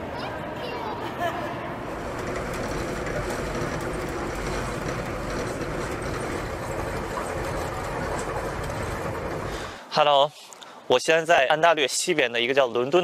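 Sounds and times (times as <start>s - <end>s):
train rumble and hiss from inside: 1.8s - 9.9s.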